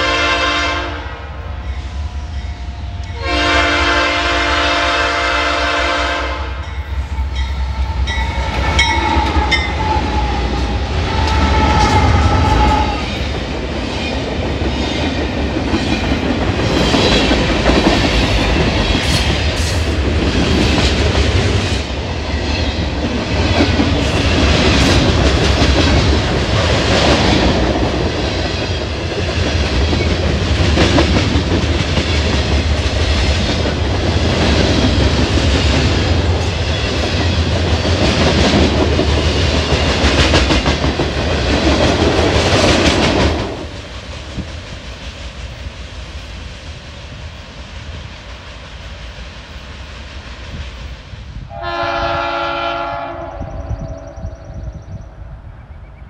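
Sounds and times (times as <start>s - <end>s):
train wheels clicking over rail joints: 6.6s - 51.1s.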